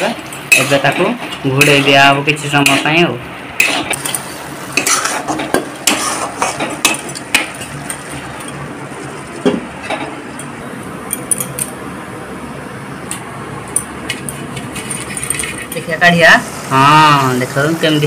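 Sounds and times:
metal spatula scraping a pan: 3.6 - 8.6.

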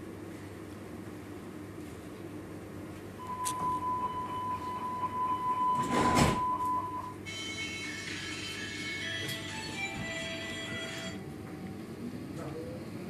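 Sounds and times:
high warning beep: 3.2 - 8.0
high steady tones: 3.2 - 11.2
train doors sliding shut: 5.5 - 6.7.

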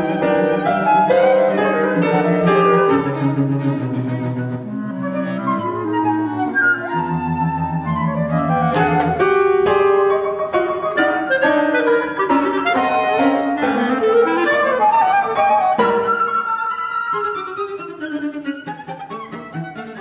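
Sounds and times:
flute and clarinet lines: 0.0 - 3.2, 4.4 - 18.4
piano chords and figures: 0.0 - 18.5
repeated cello notes: 6.8 - 14.7.

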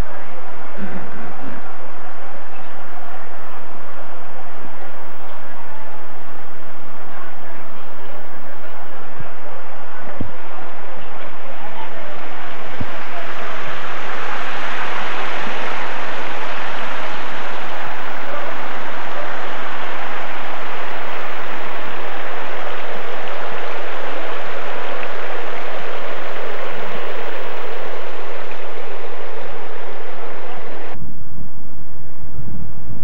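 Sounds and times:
water pouring into pools: 12.1 - 30.7.

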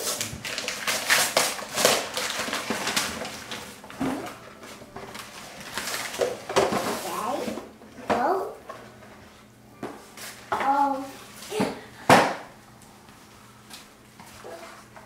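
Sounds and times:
wrapping paper tearing and crinkling: 0.0 - 7.3.

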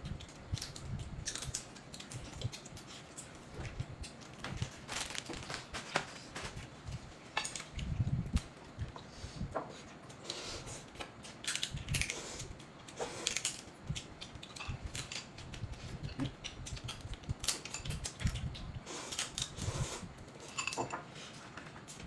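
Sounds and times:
chopsticks and crab shells cracking: 0.0 - 4.3, 10.9 - 19.6.

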